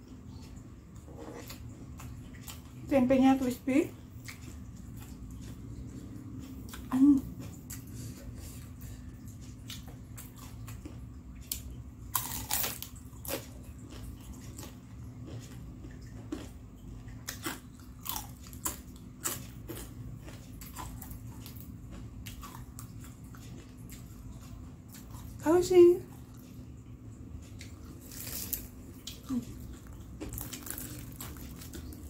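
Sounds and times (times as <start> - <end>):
crunching bites of fried food: 11.6 - 16.6, 17.2 - 24.0, 27.6 - 32.0.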